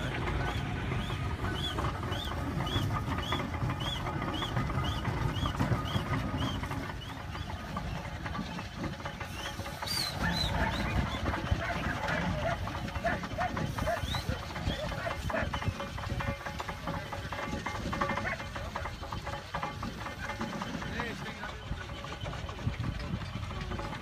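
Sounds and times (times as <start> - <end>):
low rumble: 0.0 - 19.0
plough squeaking rhythmically: 0.0 - 24.0.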